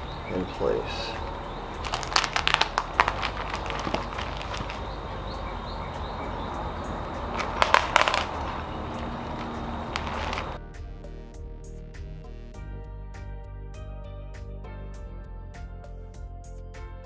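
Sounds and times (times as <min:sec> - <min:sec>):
clicks and plastic crinkles: 0:01.8 - 0:05.0, 0:07.3 - 0:10.6.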